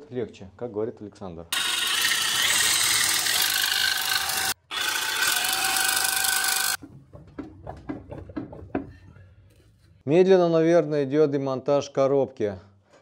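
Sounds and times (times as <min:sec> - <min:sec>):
reciprocating saw cutting metal: 0:01.6 - 0:06.8.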